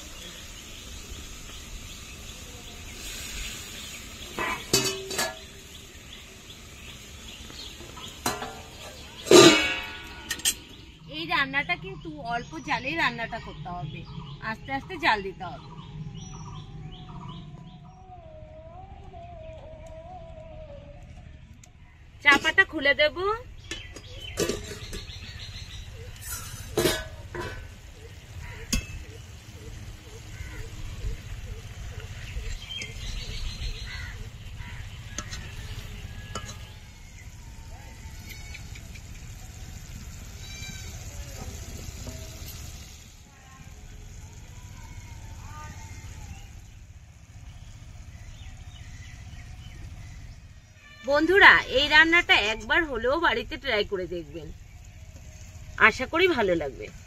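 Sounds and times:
curry simmering and sizzling: 0:00.0 - 0:11.3, 0:23.6 - 0:51.0, 0:54.5 - 0:57.0
metal lid clattering on pan: 0:04.4 - 0:05.5, 0:08.2 - 0:10.7, 0:23.7 - 0:25.2, 0:26.2 - 0:27.7.

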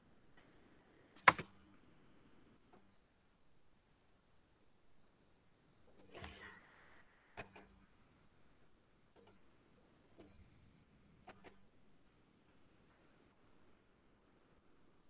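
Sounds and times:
computer mouse clicks: 0:01.2 - 0:01.6, 0:07.4 - 0:07.8, 0:11.2 - 0:11.6.

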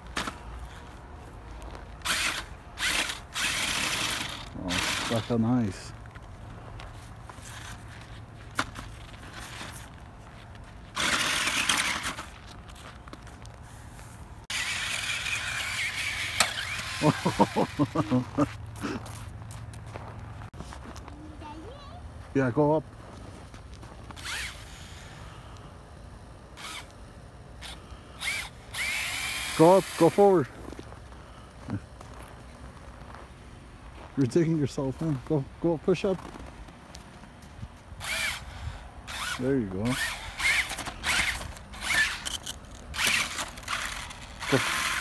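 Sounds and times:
wheels spinning in snow: 0:00.0 - 0:21.1, 0:22.4 - 0:25.3, 0:26.5 - 0:27.0, 0:27.6 - 0:34.1, 0:38.0 - 0:45.0
steady low hum: 0:00.0 - 0:45.0
toy motor whirring: 0:02.0 - 0:05.5, 0:10.9 - 0:12.3, 0:14.5 - 0:18.2, 0:24.1 - 0:25.2, 0:26.6 - 0:27.0, 0:27.6 - 0:30.4, 0:38.0 - 0:45.0.

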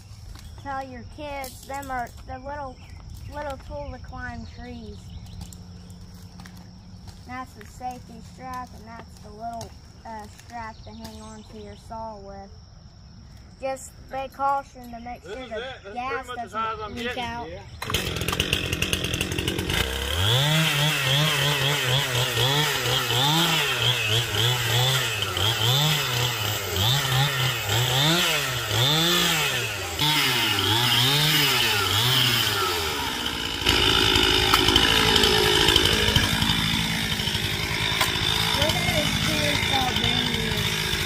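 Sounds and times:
chainsaw engine revving: 0:17.7 - 0:41.0.

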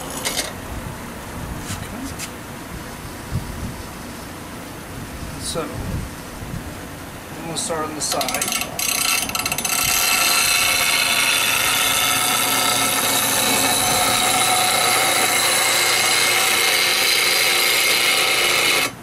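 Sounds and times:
bench grinder motor hum: 0:08.2 - 0:19.0
gouge grinding hiss: 0:08.8 - 0:18.9.

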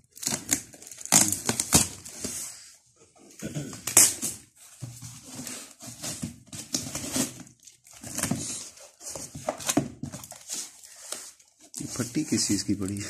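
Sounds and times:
cardboard box being opened: 0:04.6 - 0:12.4.

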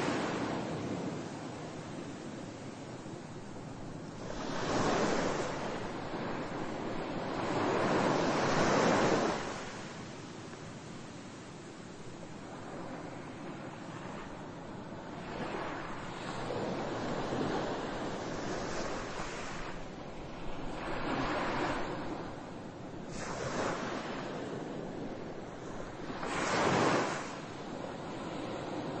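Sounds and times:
ocean waves rushing: 0:00.0 - 0:10.0.

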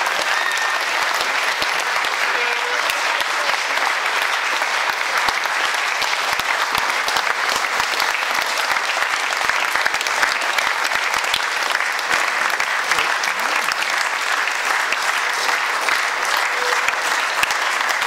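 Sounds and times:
crowd applauding: 0:00.0 - 0:18.0.

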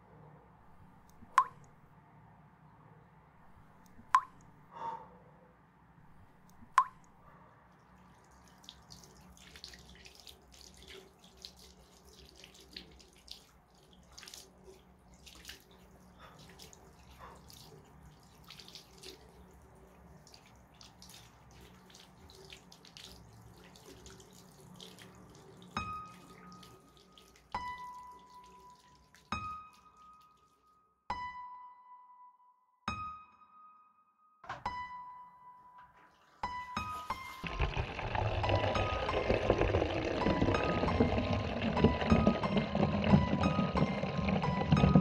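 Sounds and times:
water drops dripping: 0:01.2 - 0:01.7, 0:04.0 - 0:04.5, 0:06.5 - 0:07.2.

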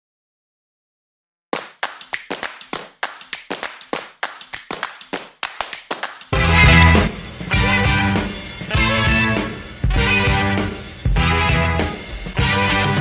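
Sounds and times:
sharp clap-like percussive hits: 0:01.6 - 0:07.2.

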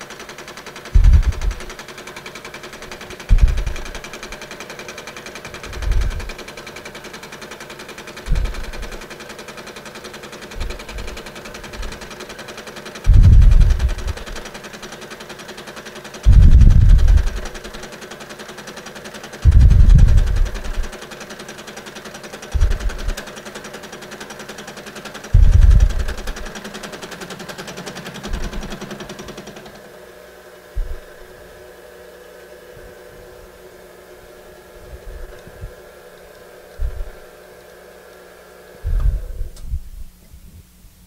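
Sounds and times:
milling machine whine and hum: 0:00.0 - 0:40.9
loud low rumbles: 0:01.0 - 0:01.7, 0:03.3 - 0:03.9, 0:05.7 - 0:06.3, 0:08.3 - 0:08.9, 0:13.1 - 0:14.4, 0:16.2 - 0:17.5, 0:19.4 - 0:20.9, 0:22.6 - 0:23.2, 0:25.3 - 0:26.5.

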